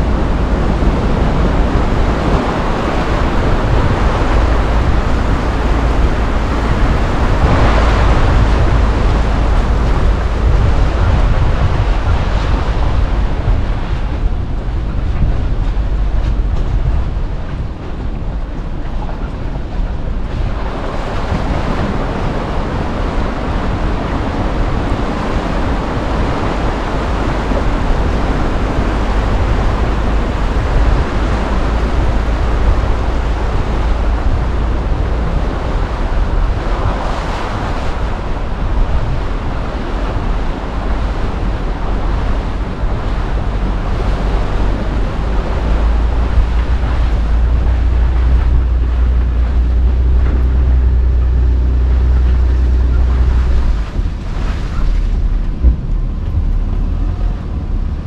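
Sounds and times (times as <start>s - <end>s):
deep rumble: 0.0s - 58.0s
loud steady rushing noise: 0.0s - 58.0s
off-road vehicle engine: 0.0s - 58.0s.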